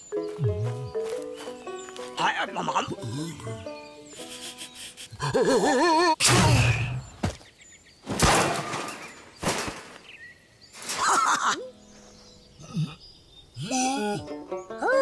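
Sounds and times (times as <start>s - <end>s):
cartoon crashes and thuds: 6.2s - 7.1s, 8.1s - 10.0s.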